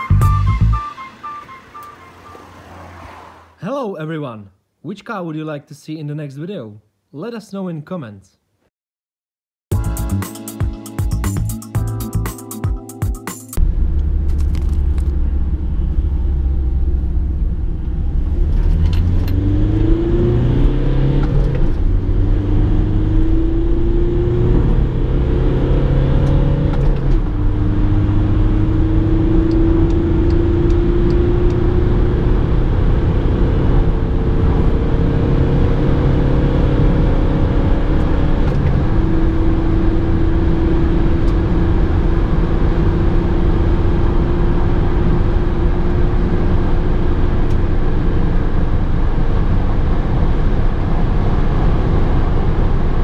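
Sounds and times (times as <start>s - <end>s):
diesel engine accelerating: 0.0s - 3.6s, 13.6s - 53.0s
road and wind noise: 0.0s - 3.6s, 13.6s - 53.0s.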